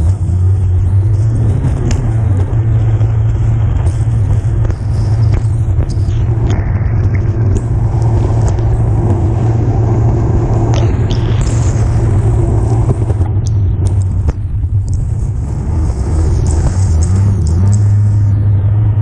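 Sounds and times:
sharp ticks: 0:01.0 - 0:09.2, 0:10.6 - 0:15.1, 0:16.2 - 0:17.9.

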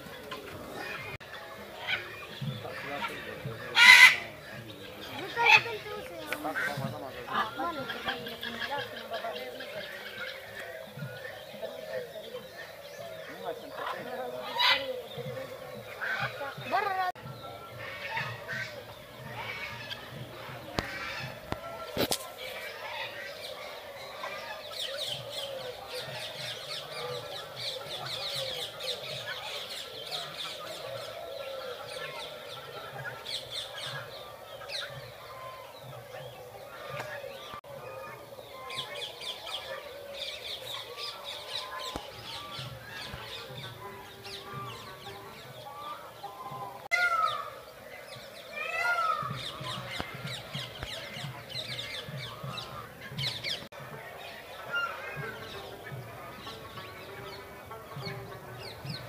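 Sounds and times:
geese honking: 0:00.0 - 0:10.9, 0:13.2 - 0:35.7, 0:48.6 - 0:59.0
birds chirping: 0:00.0 - 0:59.0
bird honking calls: 0:00.4 - 0:11.7.

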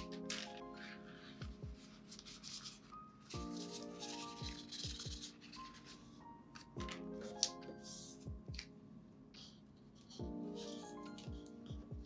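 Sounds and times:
soft lofi music: 0:00.0 - 0:12.0
kick drum: 0:11.7 - 0:12.0.

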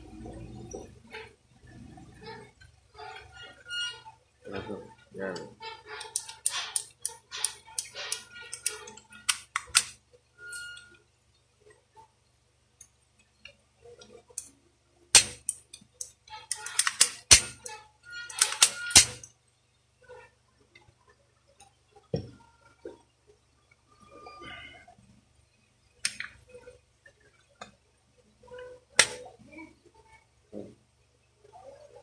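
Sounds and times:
pistol parts clicking and knocking: 0:06.0 - 0:10.0, 0:15.2 - 0:17.7, 0:18.3 - 0:19.3, 0:26.0 - 0:26.4, 0:29.0 - 0:29.2.

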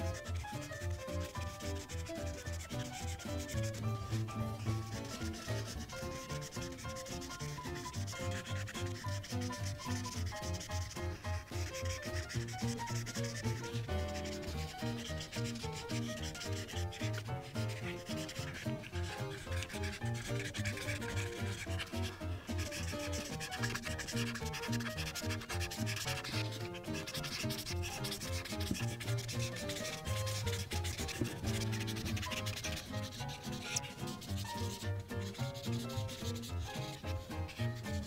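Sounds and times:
marker rubbing on paper: 0:00.0 - 0:38.0
soft background music: 0:00.0 - 0:38.0.

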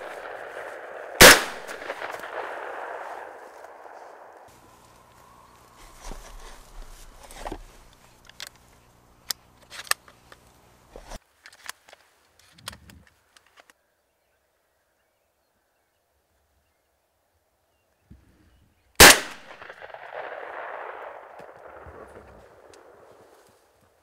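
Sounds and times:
clicks and knocks of gear handled: 0:11.0 - 0:13.8.

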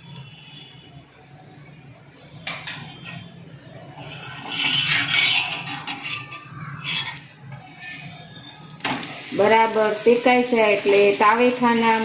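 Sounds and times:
oil sizzling: 0:00.0 - 0:12.0
metal utensils scraping on griddle: 0:02.4 - 0:12.0.

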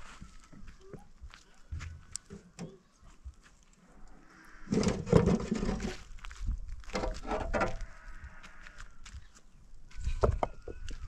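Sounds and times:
stones clattering in metal wheelbarrow: 0:04.7 - 0:06.2, 0:06.9 - 0:07.8.

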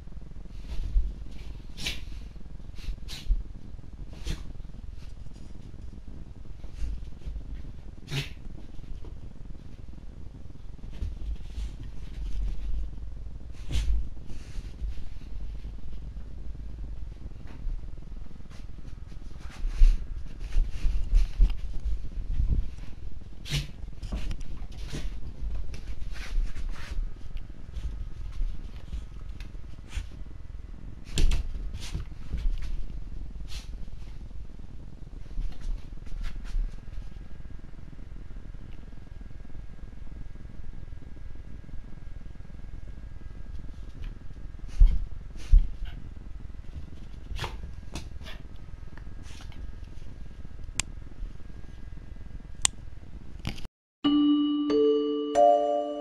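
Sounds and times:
music jingle: 0:54.1 - 0:56.0.

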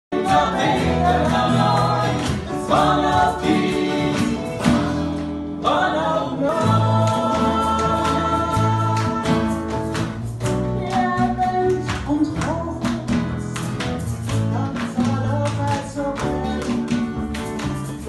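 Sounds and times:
choir singing: 0:00.1 - 0:09.7
acoustic guitars: 0:00.1 - 0:18.0.

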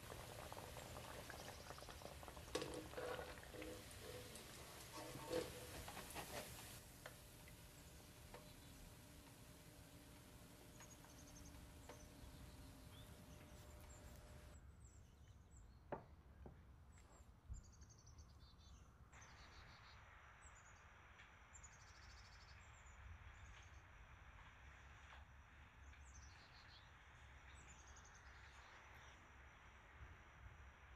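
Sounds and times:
faint bird chirps: 0:17.5 - 0:20.9.

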